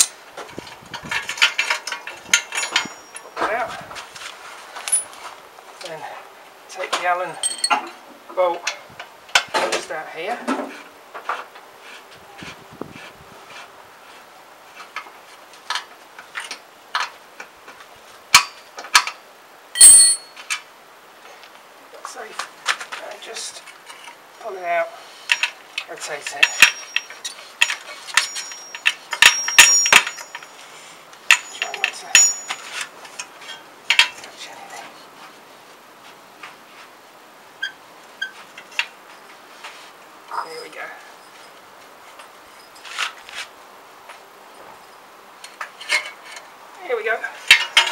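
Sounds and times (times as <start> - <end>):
ringing metal clink: 2.3 - 3.3, 7.3 - 7.9, 19.8 - 20.4, 26.4 - 30.6, 31.3 - 32.8
high metallic pings: 19.8 - 20.4, 28.2 - 30.5, 31.3 - 32.7.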